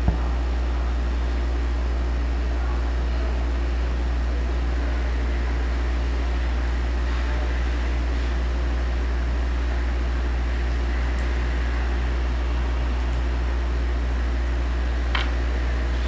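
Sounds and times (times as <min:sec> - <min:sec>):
low hum: 0:00.0 - 0:00.9.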